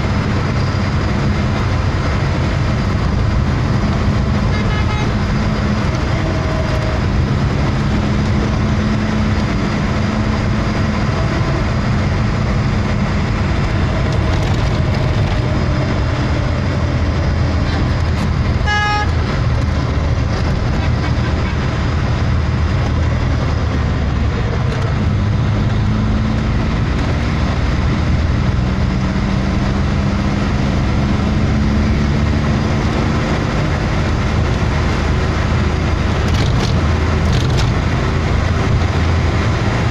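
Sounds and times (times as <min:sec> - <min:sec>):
vehicle engine and road noise: 0:00.0 - 0:39.9
vehicle horn toot: 0:04.4 - 0:05.3, 0:18.6 - 0:19.2.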